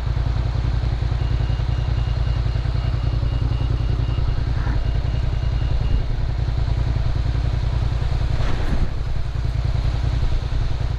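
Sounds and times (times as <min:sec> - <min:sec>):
motorcycle engine idling: 0:00.0 - 0:10.9.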